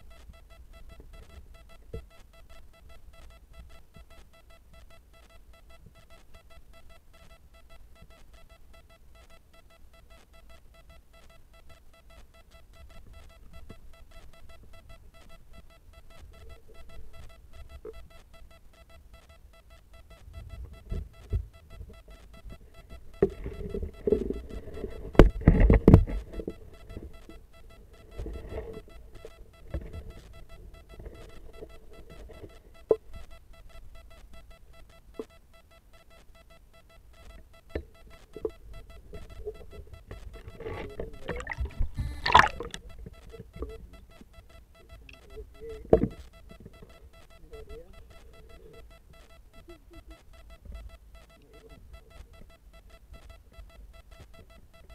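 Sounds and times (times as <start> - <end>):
faint electronic whine: 0.0 - 54.9
muffled underwater knocks and thumps: 40.8 - 42.9, 45.9 - 46.2.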